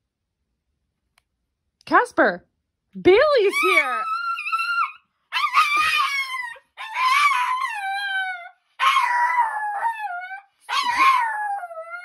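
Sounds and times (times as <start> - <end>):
small dog howling: 3.5 - 12.0.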